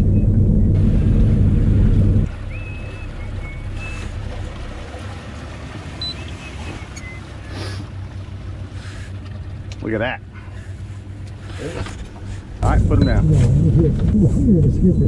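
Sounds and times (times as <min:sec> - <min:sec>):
wind rumble on microphone: 0:00.0 - 0:04.0, 0:12.5 - 0:15.0.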